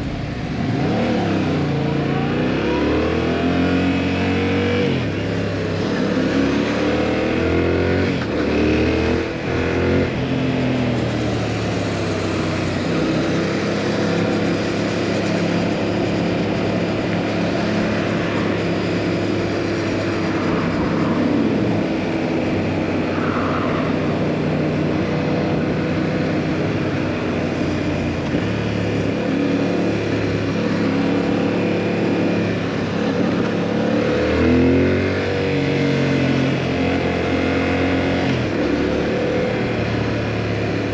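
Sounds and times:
motorcycle engine: 0.0s - 40.9s
wind rushing: 20.0s - 25.7s.

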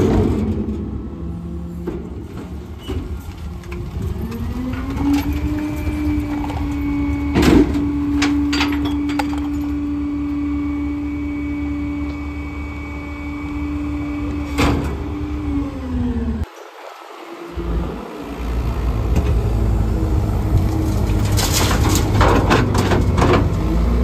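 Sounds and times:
garbage truck engine revving: 17.0s - 24.0s.

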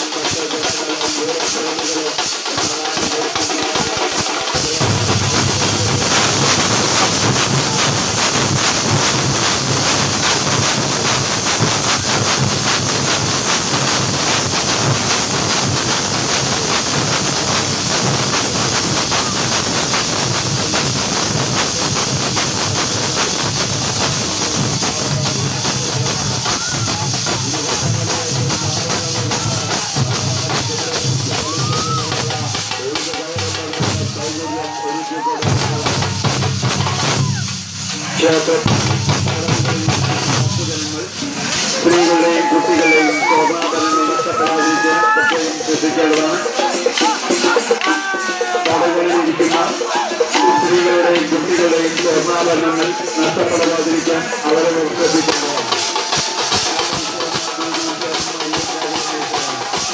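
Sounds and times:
crowd: 0.0s - 59.9s
cymbals ringing: 0.0s - 59.9s
percussion ensemble drumming: 0.0s - 59.9s.

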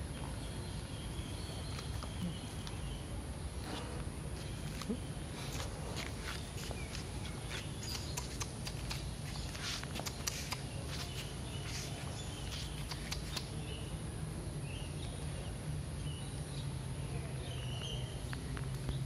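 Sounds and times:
footsteps on concrete: 3.6s - 13.4s.

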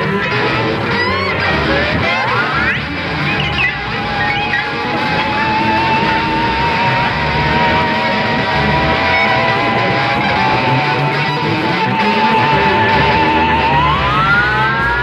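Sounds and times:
bass: 0.0s - 15.0s
drums: 0.0s - 15.0s
electric guitar long high note: 0.0s - 15.0s.

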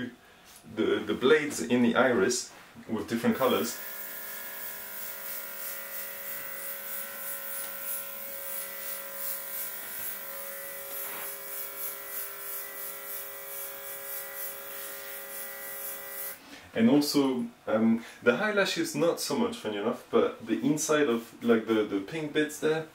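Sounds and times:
small compressor whining: 3.4s - 16.4s
airbrush air hissing: 3.5s - 16.4s.

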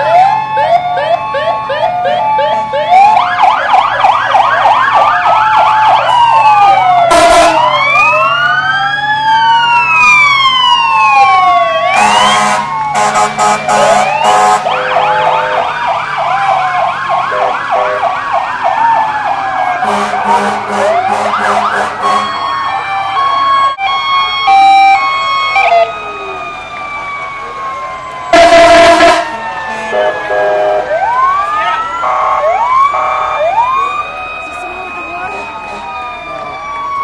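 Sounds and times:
fire truck sirens: 0.0s - 37.0s
loud horn blasts: 7.1s - 7.8s, 11.9s - 15.7s, 17.3s - 18.1s, 19.8s - 22.3s, 28.3s - 31.0s.

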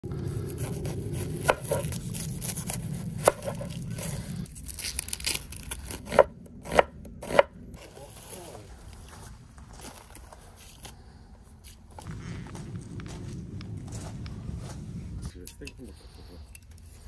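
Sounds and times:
low steady rumble: 0.0s - 17.0s
knife chopping onion on wooden board: 0.6s - 2.0s, 3.2s - 3.7s, 6.1s - 7.5s.

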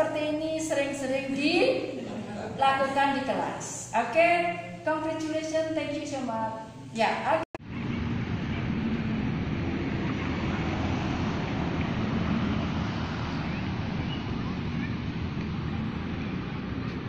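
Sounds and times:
road traffic rumble: 7.6s - 17.0s
wind buffeting microphone: 7.7s - 17.0s.

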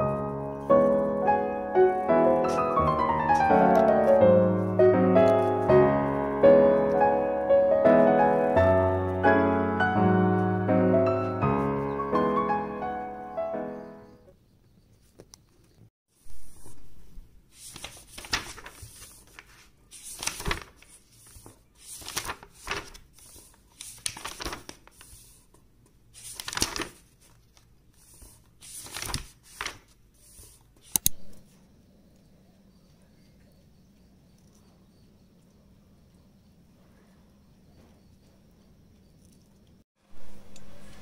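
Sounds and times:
paper pages rustling: 2.0s - 6.2s, 16.2s - 31.4s
sharp clicks: 30.8s - 31.4s.

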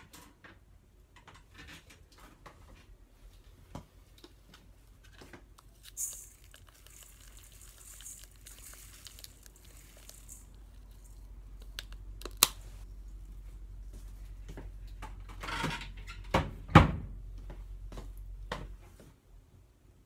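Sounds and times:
salt grains pattering on shells: 5.6s - 12.2s
salt clicking on shells: 5.8s - 12.5s.

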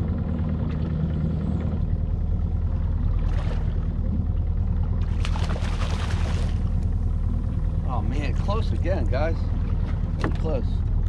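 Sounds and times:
outboard motor idling: 0.0s - 11.0s
fish splashing: 4.9s - 6.8s.

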